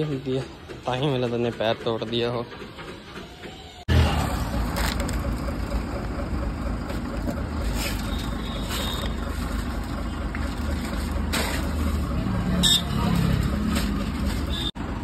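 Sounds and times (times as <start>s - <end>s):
vehicle engine idling: 3.9s - 15.0s.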